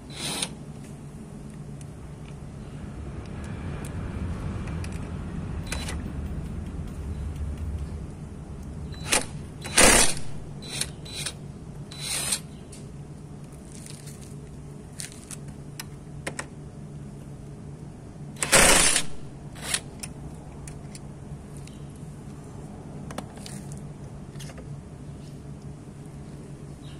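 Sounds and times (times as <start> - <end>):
steady low hum: 0.0 - 26.9
impact wrench bursts: 9.0 - 12.5, 18.4 - 19.9.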